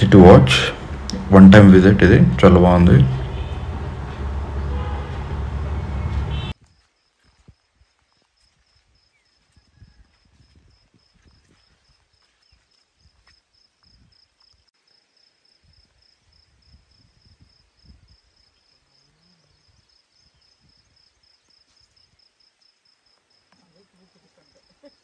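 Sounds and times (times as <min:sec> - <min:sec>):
insect chirping: 0:06.2 - 0:25.0
wind buffeting microphone: 0:09.6 - 0:11.6.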